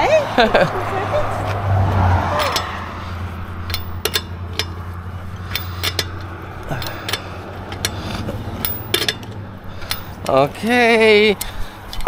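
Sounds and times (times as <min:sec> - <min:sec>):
steady low hum: 0:00.0 - 0:12.0
metallic clinks and knocks: 0:02.3 - 0:10.7.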